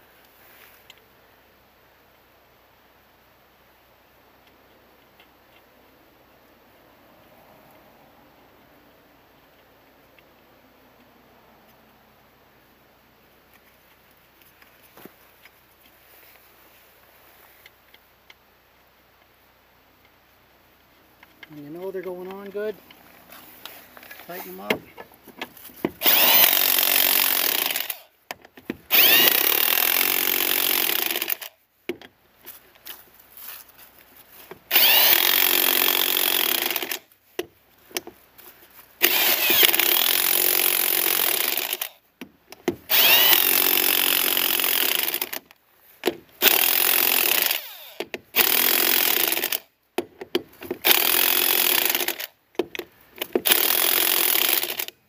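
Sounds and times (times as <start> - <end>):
electric impact wrench running: 25.9 - 28.2, 28.8 - 31.5, 34.7 - 37.1, 39.0 - 42.0, 42.9 - 45.4, 46.0 - 49.7, 50.6 - 52.4, 53.2 - 55.0.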